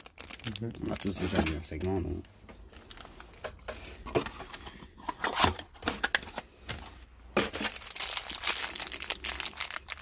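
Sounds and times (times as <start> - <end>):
plastic packaging crinkling: 0.0 - 3.6, 7.4 - 10.0.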